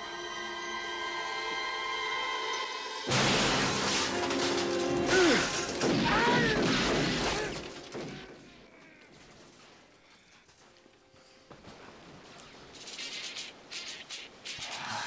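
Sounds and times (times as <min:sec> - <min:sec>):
crashes and clatter: 0:03.1 - 0:08.5.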